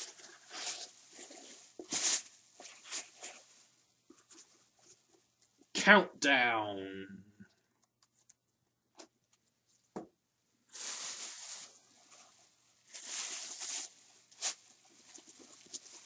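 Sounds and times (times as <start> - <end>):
packaging rustling: 0.0 - 5.0, 10.7 - 16.0.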